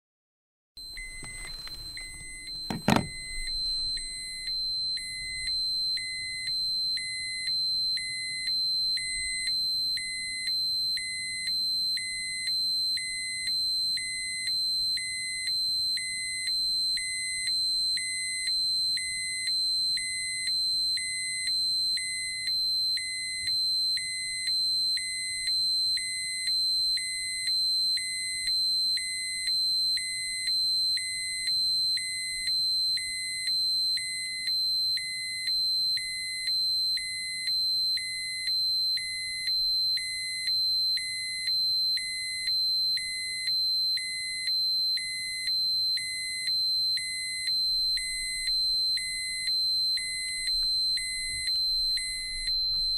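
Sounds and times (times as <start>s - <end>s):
pulsing low beep: 0.8s - 8.4s, 45.0s - 52.9s
high-pitched electronic alarm tone: 0.8s - 11.4s, 31.0s - 52.9s.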